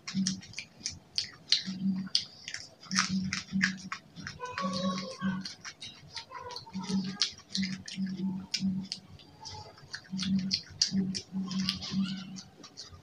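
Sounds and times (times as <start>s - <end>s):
close chewing with lip-smacking: 0.0s - 13.0s.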